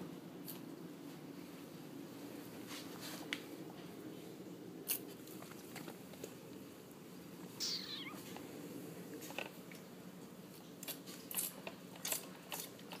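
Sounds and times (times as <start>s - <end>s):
puppy whining: 7.6s - 8.3s.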